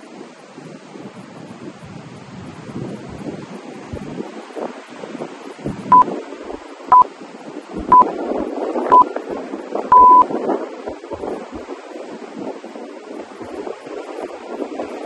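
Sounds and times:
interval timer short beeps: 0:07.8 - 0:08.1, 0:09.9 - 0:10.3
long timer beep: 0:07.9 - 0:08.1, 0:09.9 - 0:10.3.

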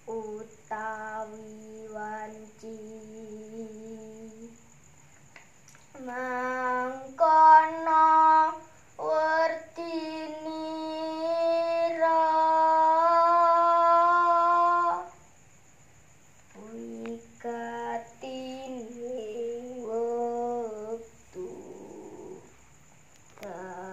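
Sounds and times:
girl singing unaccompanied: 0:00.0 - 0:05.0, 0:05.6 - 0:15.4, 0:16.4 - 0:23.9.

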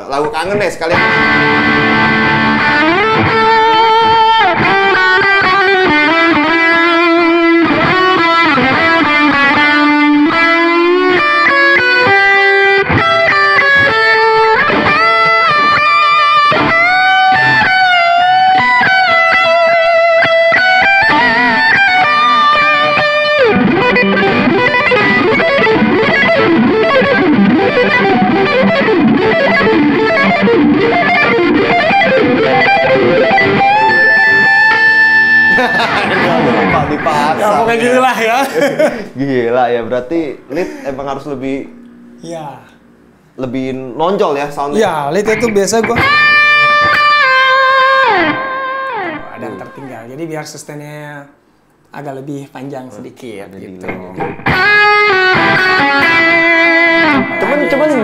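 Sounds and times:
overdriven electric guitar lead: 0:00.9 - 0:39.2, 0:40.0 - 0:43.4, 0:44.7 - 0:50.0, 0:53.9 - 0:58.0.

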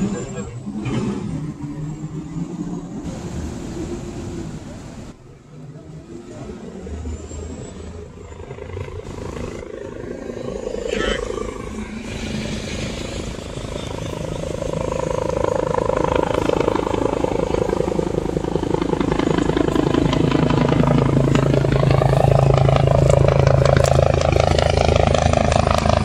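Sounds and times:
helicopter engine whine: 0:00.0 - 0:26.0
helicopter rotor chop: 0:05.9 - 0:26.0.

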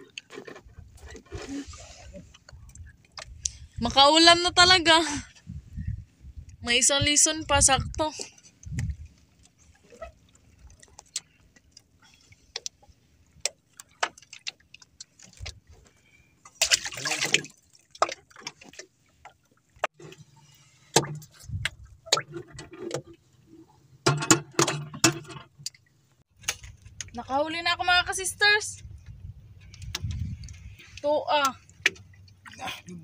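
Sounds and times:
water sloshing in a box: 0:07.8 - 0:23.3.

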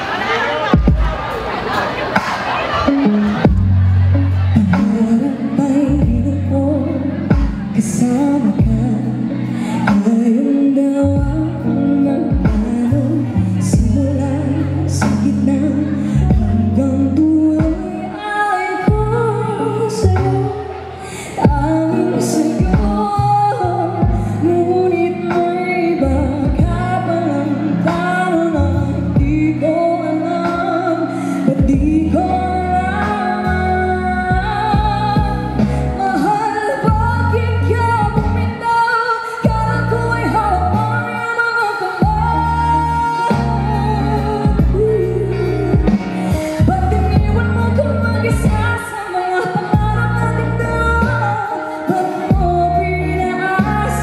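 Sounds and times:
instrumental accompaniment: 0:02.1 - 0:54.0
woman singing into microphone: 0:02.8 - 0:54.0
backing track of bass and drums: 0:03.3 - 0:05.2, 0:05.9 - 0:10.2, 0:11.0 - 0:17.9, 0:18.9 - 0:19.3, 0:21.4 - 0:29.8, 0:31.5 - 0:38.6, 0:42.0 - 0:48.9, 0:49.7 - 0:51.5, 0:52.3 - 0:54.0
slow drum beat: 0:44.4 - 0:46.6.

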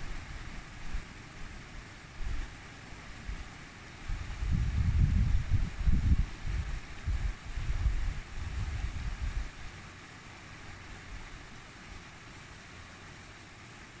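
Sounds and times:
stream rushing over rocks: 0:00.0 - 0:14.0
wind buffeting microphone: 0:04.0 - 0:09.7.

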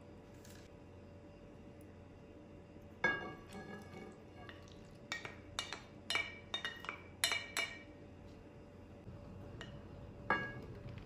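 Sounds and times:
dish clinking on ceramic bowl: 0:03.0 - 0:07.9, 0:09.6 - 0:10.6.

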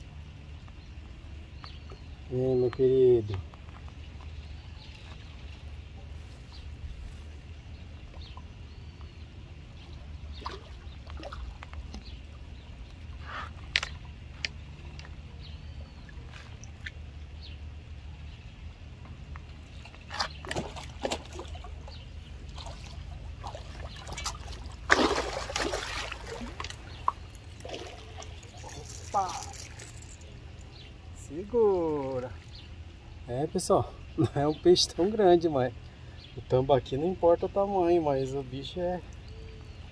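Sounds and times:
steady low hum: 0:00.0 - 0:39.9
fish splashing at water surface: 0:20.1 - 0:30.2.

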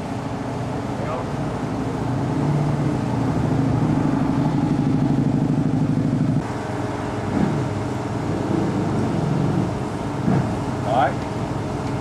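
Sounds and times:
motorcycle engine running: 0:03.2 - 0:06.4.

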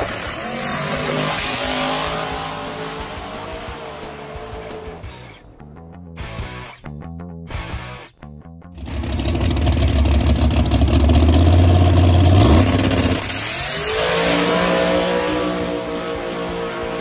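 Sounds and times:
drag car engine revving and launching: 0:00.0 - 0:04.9, 0:08.8 - 0:17.0.

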